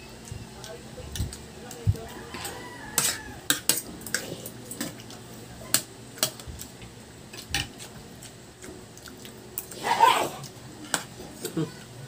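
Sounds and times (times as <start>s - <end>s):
cutlery clinking on plates: 2.3s - 5.0s.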